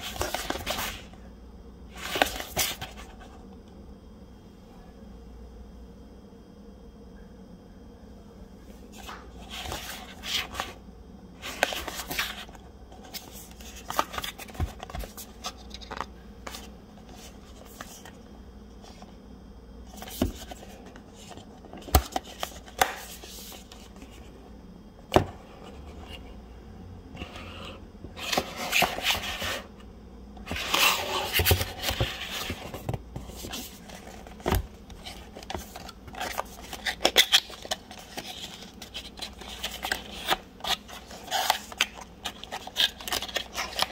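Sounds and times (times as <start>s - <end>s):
cardboard sliding and rustling: 0.0s - 1.2s, 27.2s - 29.7s, 30.4s - 43.9s.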